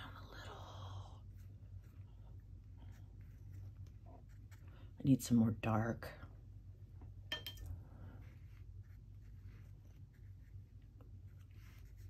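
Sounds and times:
room hum: 0.0s - 12.0s
brush rubbing paint: 1.2s - 5.0s, 8.0s - 12.0s.

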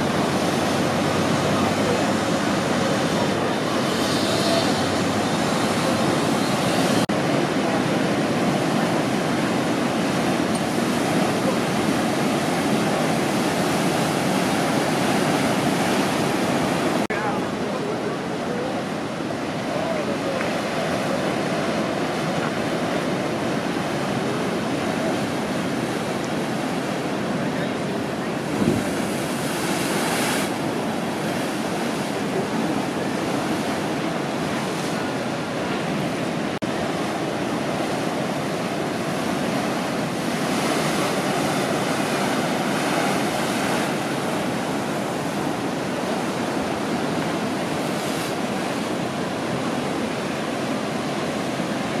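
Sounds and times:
ocean surf breaking: 0.0s - 52.0s
wind gust on microphone: 20.5s - 52.0s.

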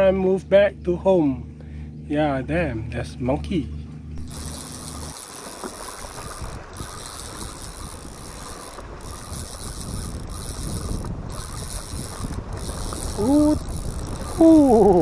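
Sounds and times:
fishing reel cranking: 4.2s - 15.0s.

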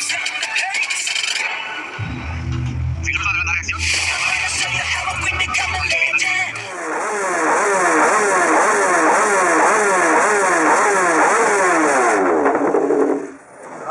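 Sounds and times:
motorcycle engine revving: 2.0s - 13.4s.

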